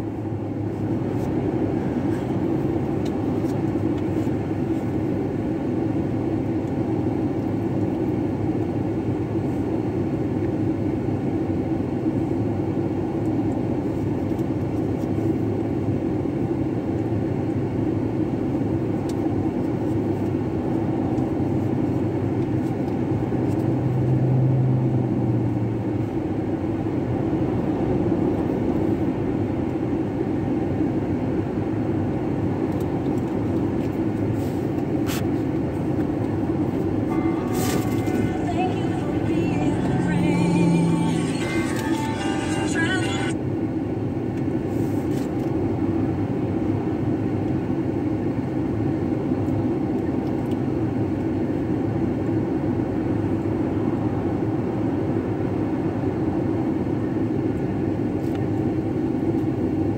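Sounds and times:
traffic passing: 31.5 - 43.4
car engine idling: 35.8 - 43.3.

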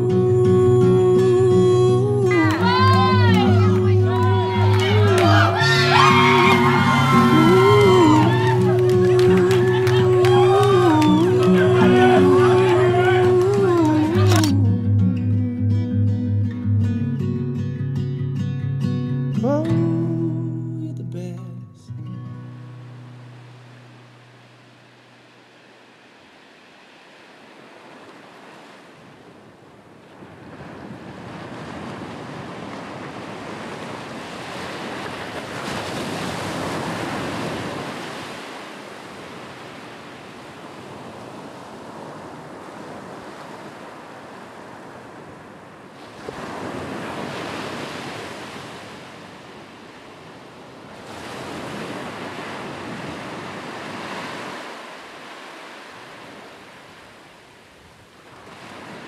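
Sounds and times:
ocean surf washing onto beach: 0.0 - 14.7, 22.5 - 59.0.

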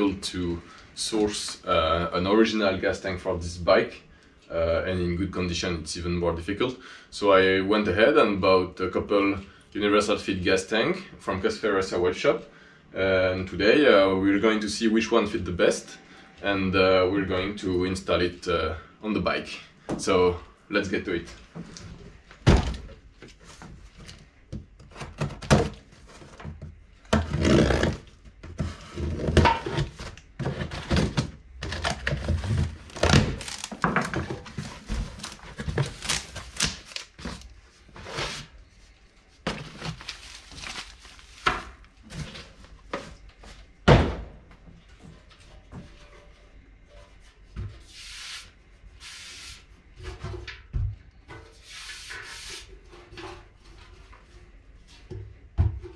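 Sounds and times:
thunks and knocks of handling: 21.4 - 37.5
cardboard and packing rustling: 21.4 - 43.8.

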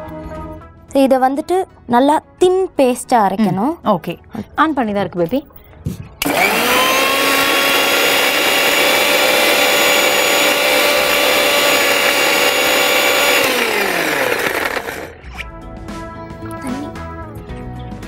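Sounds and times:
mixer grinder motor whine: 6.2 - 15.2.

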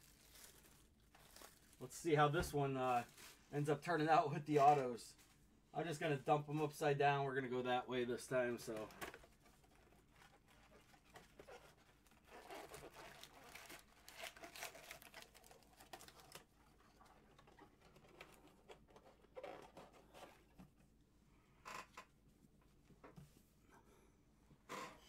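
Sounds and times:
card packs rustling: 0.0 - 3.8, 8.6 - 18.9.

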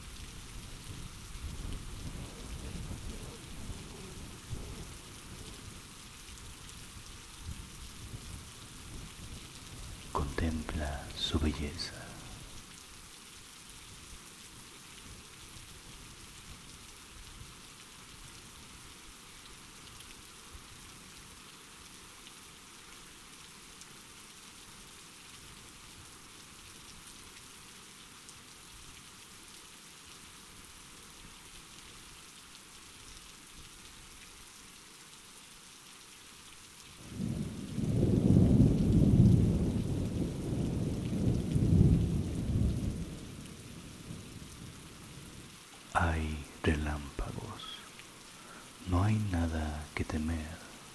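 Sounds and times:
soft rain: 0.0 - 50.9
rolling thunder: 37.1 - 43.3.

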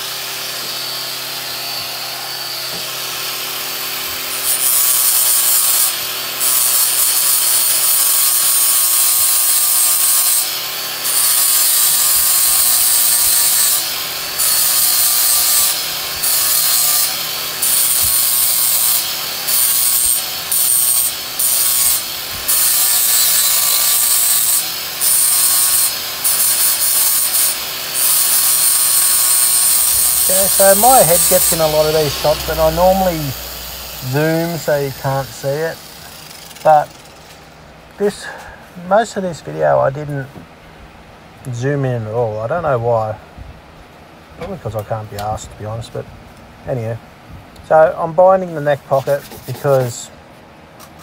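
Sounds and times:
hand sanding wood: 16.2 - 37.0, 48.9 - 50.0.

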